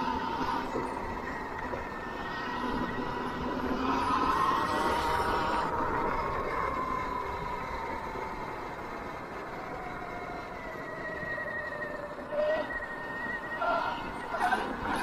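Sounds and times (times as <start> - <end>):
wind and road noise: 0.0 - 15.0.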